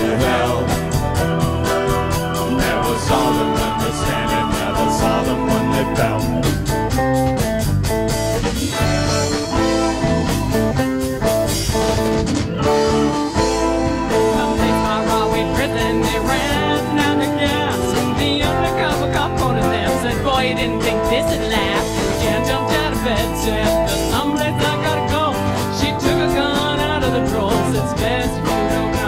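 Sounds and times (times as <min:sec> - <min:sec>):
person singing: 0:00.0 - 0:06.8, 0:14.0 - 0:29.0
drum kit beat: 0:00.0 - 0:29.0
guitars bass and keyboard: 0:00.0 - 0:29.0.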